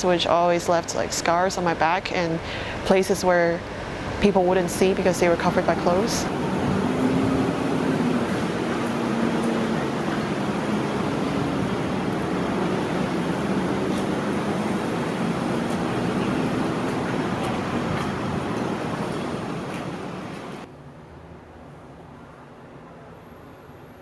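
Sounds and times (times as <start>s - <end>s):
city traffic: 0.0s - 24.0s
low engine hum: 5.4s - 20.7s.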